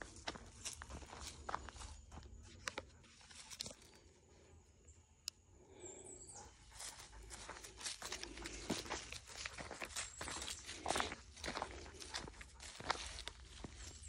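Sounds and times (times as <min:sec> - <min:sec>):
footsteps in grass and dry leaves: 0:00.0 - 0:04.1, 0:06.6 - 0:14.0.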